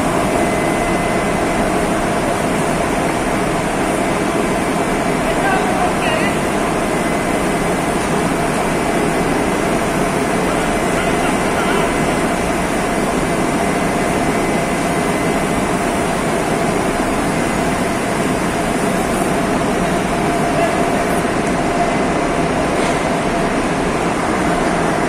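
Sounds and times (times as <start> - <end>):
ring rolling machine running: 0.0 - 25.0.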